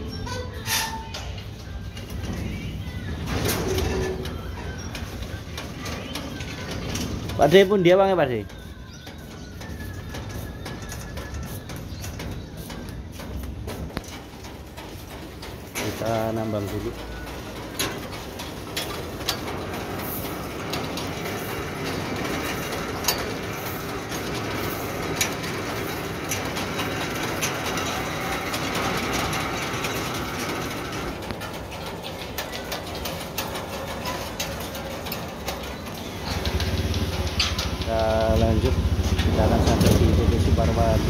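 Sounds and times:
steel cable clicks and rattles: 0:03.2 - 0:40.7.

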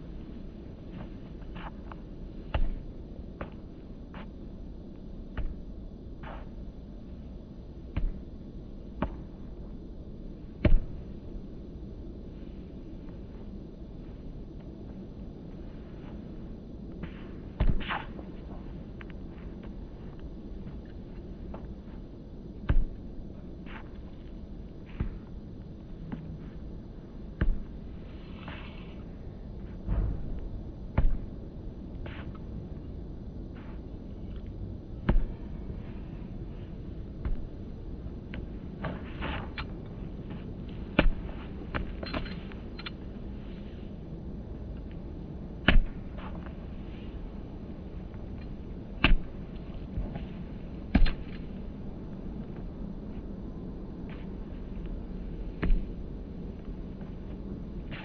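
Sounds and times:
low background noise: 0:00.0 - 0:58.0
outdoor background noise: 0:00.0 - 0:58.0
ball kicked with thuds: 0:10.6 - 0:11.0, 0:17.0 - 0:18.1, 0:29.8 - 0:31.4, 0:35.0 - 0:35.4, 0:40.9 - 0:42.0, 0:45.6 - 0:46.2, 0:49.0 - 0:49.5
football kicked with sharp thump: 0:10.6 - 0:11.0, 0:17.6 - 0:18.0, 0:45.7 - 0:46.0, 0:49.0 - 0:49.4.

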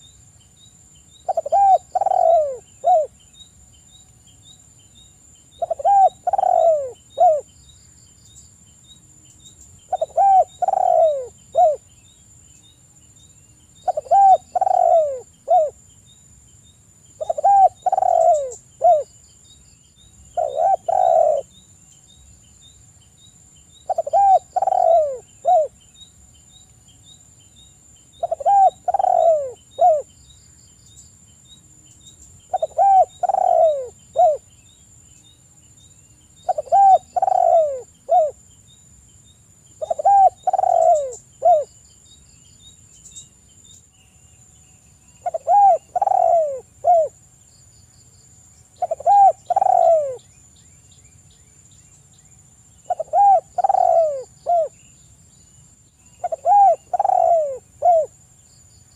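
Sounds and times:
dove cooing: 0:01.2 - 0:03.1, 0:05.6 - 0:07.5, 0:09.9 - 0:11.8, 0:13.8 - 0:15.8, 0:17.2 - 0:19.1, 0:20.4 - 0:21.5, 0:23.9 - 0:25.8, 0:28.2 - 0:30.1, 0:32.5 - 0:34.5, 0:36.4 - 0:38.4, 0:39.8 - 0:41.7, 0:45.2 - 0:47.2, 0:48.8 - 0:50.2, 0:52.9 - 0:54.8, 0:56.2 - 0:58.1.

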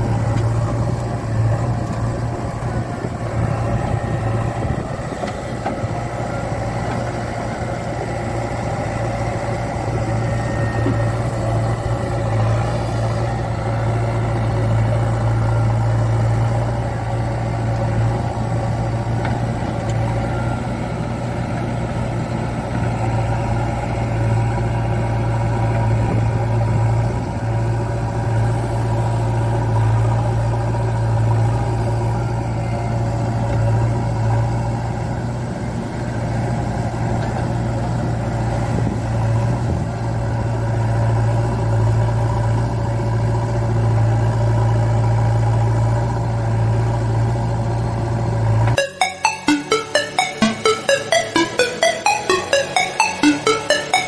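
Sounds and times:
diesel engine running: 0:00.0 - 0:33.9.

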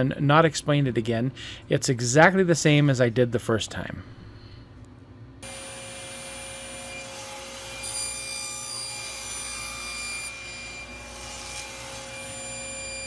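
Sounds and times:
saw cutting plywood: 0:05.4 - 0:13.0
table saw whining: 0:05.4 - 0:13.0.

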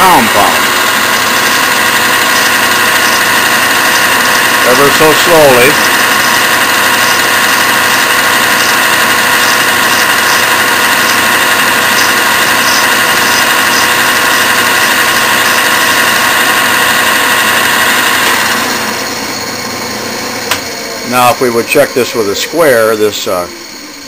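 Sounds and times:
tool bit cutting wood: 0:00.0 - 0:19.2
lathe running: 0:00.0 - 0:24.0.

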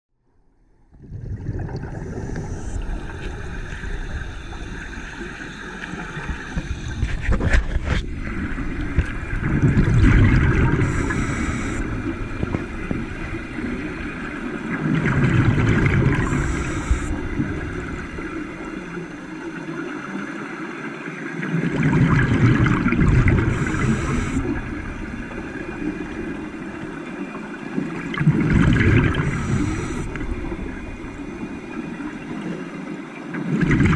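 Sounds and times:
underwater exhaust bubbles gurgling: 0:00.6 - 0:33.9
breathing gear hiss: 0:10.8 - 0:12.0, 0:16.2 - 0:17.2, 0:23.5 - 0:24.6, 0:29.2 - 0:30.2.

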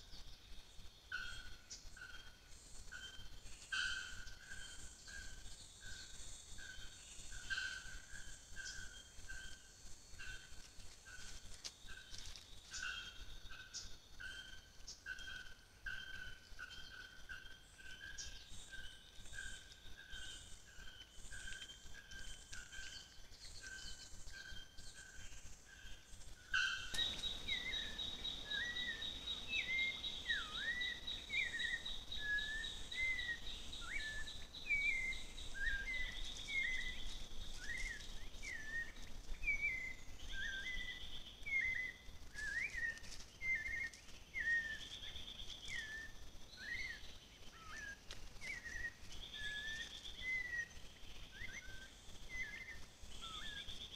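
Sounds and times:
bird chirps: 0:00.0 - 0:53.9
high insect trill: 0:17.9 - 0:53.9.

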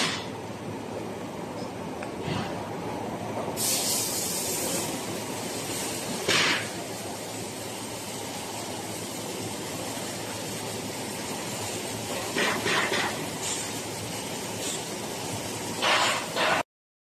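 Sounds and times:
factory hissing noise: 0:00.0 - 0:16.6.

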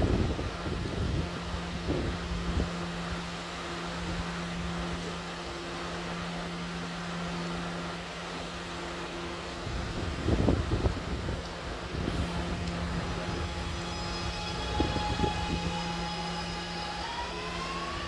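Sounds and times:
wind buffeting microphone: 0:00.0 - 0:03.4, 0:09.5 - 0:16.5
subway train humming: 0:00.0 - 0:18.0.

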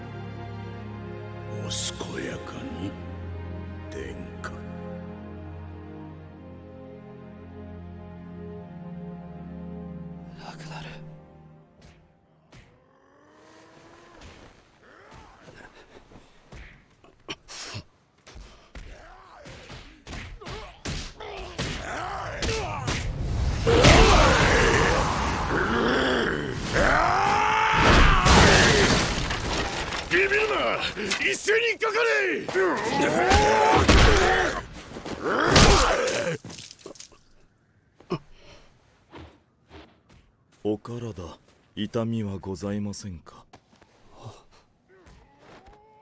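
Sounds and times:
men shouting and grunting: 0:12.3 - 0:36.6, 0:44.2 - 0:46.0
men yelling and screaming: 0:12.4 - 0:16.3, 0:18.6 - 0:36.4.

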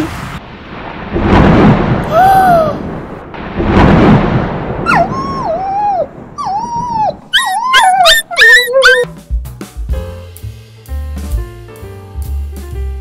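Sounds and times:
thunderclap crashes: 0:00.0 - 0:08.1
dog whimpering: 0:04.9 - 0:09.1.

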